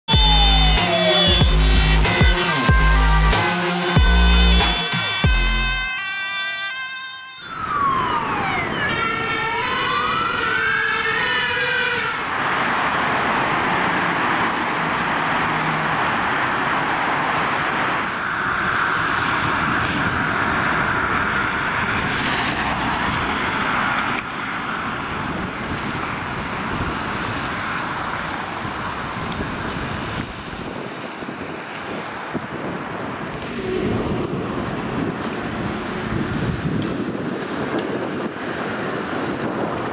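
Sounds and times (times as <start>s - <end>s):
city traffic noise: 0.0s - 39.9s
air horn: 0.1s - 7.6s, 10.7s - 12.3s, 33.4s - 34.5s
intro music: 0.1s - 8.6s
emergency siren wailing: 0.1s - 30.4s, 33.3s - 38.3s.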